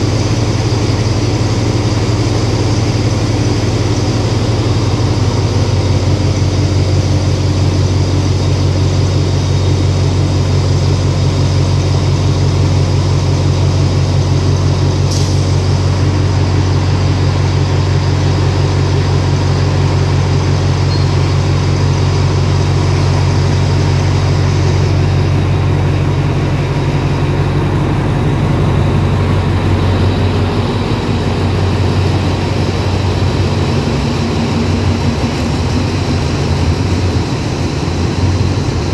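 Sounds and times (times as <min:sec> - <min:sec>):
diesel locomotive engine drone: 0:00.0 - 0:38.9.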